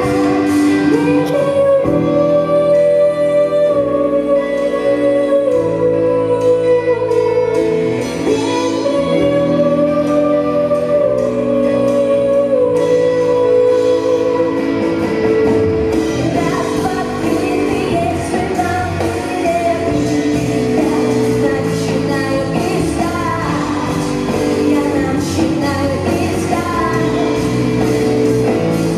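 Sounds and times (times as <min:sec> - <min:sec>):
band with singing guitar and drums: 0:00.0 - 0:28.9.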